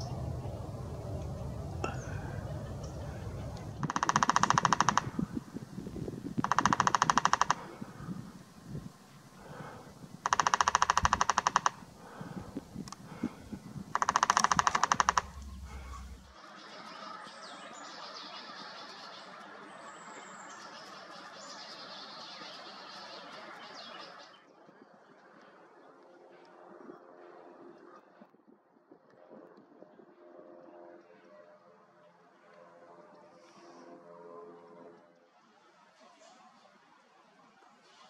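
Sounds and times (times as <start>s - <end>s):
woodpecker drumming on tree: 1.8s - 16.4s.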